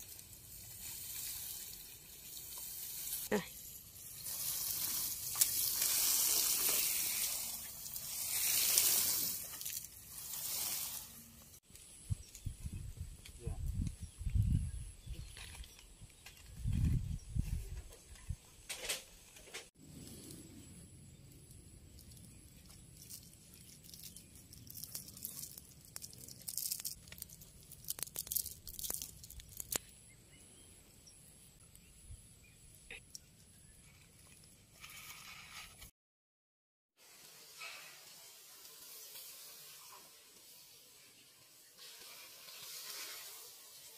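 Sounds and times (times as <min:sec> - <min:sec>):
watering can spraying onto soil: 0:00.0 - 0:11.6, 0:37.0 - 0:43.9
dry stalks crunching underfoot: 0:21.9 - 0:30.0.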